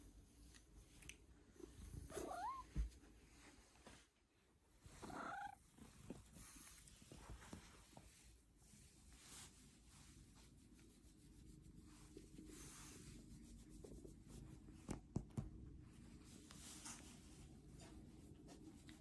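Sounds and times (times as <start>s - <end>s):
cat purring: 4.8s - 6.8s.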